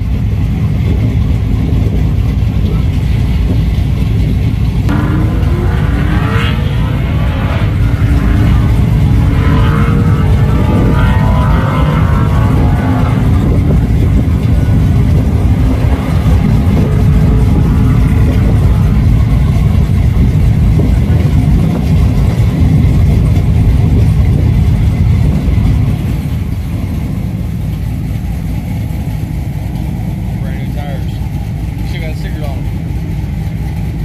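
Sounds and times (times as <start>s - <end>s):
truck engine rumbling: 0.0s - 34.0s.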